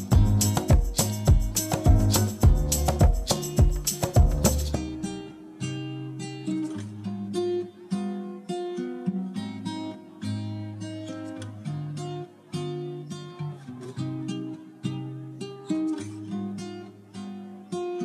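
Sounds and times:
acoustic guitar melody: 0.0 - 18.0.

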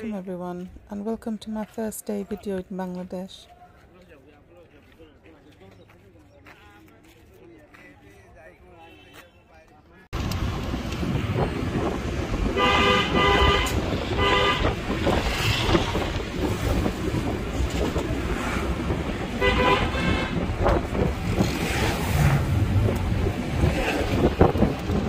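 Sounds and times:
vehicle horns honking: 8.8 - 9.6, 12.5 - 14.9, 19.3 - 20.5
car road and engine noise: 10.1 - 25.0.

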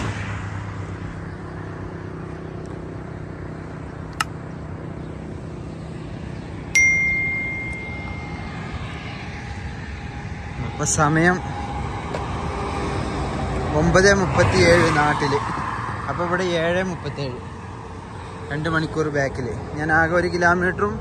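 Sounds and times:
low road traffic hum: 0.0 - 21.0
sharp click: 4.1 - 4.4
bell ding: 6.8 - 8.8.

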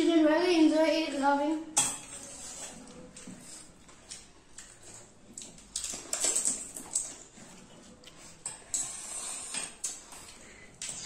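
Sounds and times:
child slurping liquid: 7.2 - 11.0.

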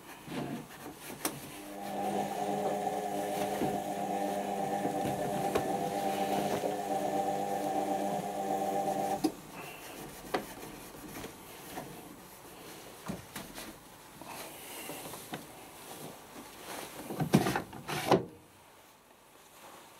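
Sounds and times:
washing machine motor whine: 1.5 - 9.3
washing machine drum running down: 1.6 - 9.2.

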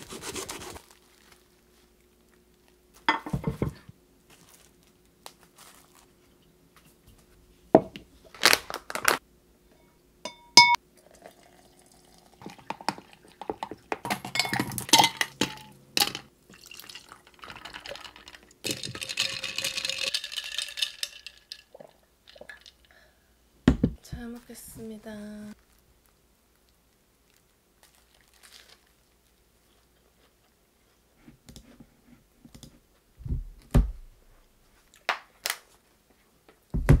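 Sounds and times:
dishes knocking: 3.1 - 3.8
ringing clink of glass: 9.7 - 10.8.

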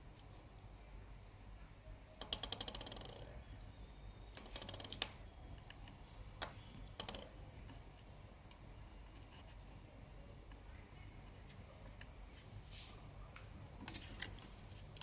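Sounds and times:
solder flux crackling and popping: 4.3 - 15.0.

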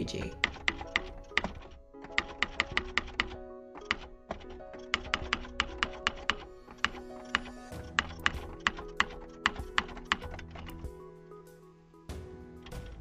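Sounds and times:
soft background music: 0.0 - 13.0
keyboard typing clicks: 0.2 - 10.8.

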